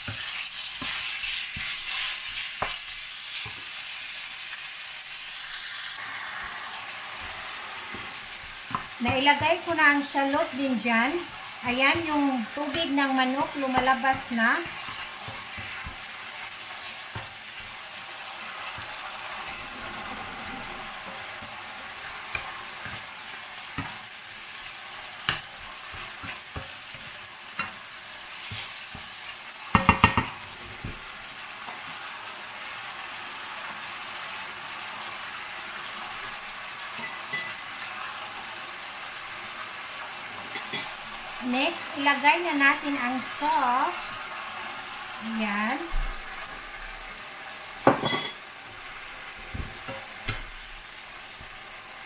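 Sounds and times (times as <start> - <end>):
spatula scraping pan: 0.0 - 3.8, 6.3 - 32.0, 40.3 - 41.4
food sizzling in hot oil: 0.0 - 52.0.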